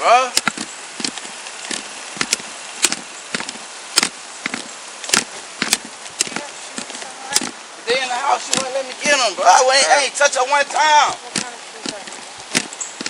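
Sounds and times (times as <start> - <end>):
gear knocking against camera: 0.4 - 7.6, 10.8 - 13.0
footsteps on asphalt: 0.4 - 9.3, 10.3 - 13.0.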